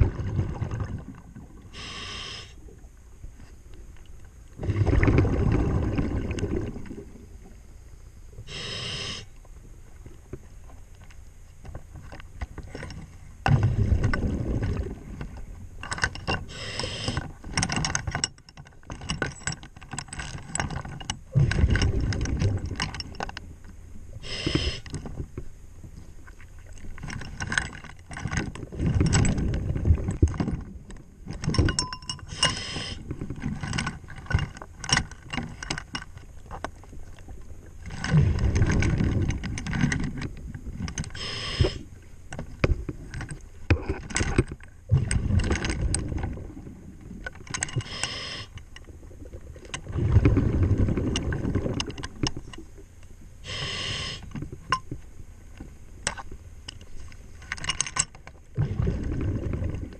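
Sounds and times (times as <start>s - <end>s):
diver exhaling bubbles underwater: 0.0s - 2.5s, 4.6s - 7.2s, 13.5s - 15.2s, 48.3s - 51.9s, 58.6s - 59.9s.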